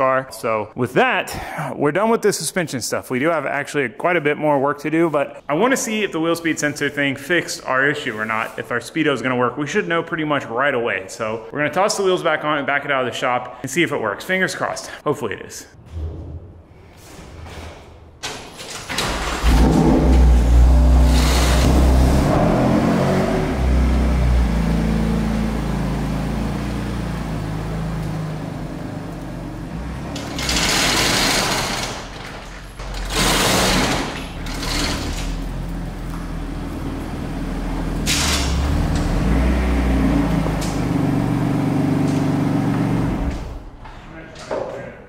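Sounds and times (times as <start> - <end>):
car engine starting and running: 18.8 - 32.3, 32.9 - 43.8.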